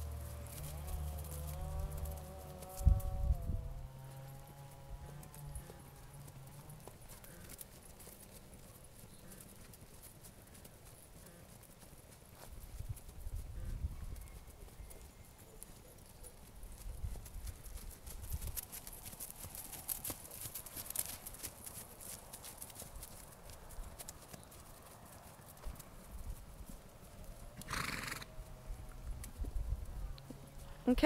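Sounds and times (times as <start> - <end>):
horse whinnying: 27.6 - 28.3.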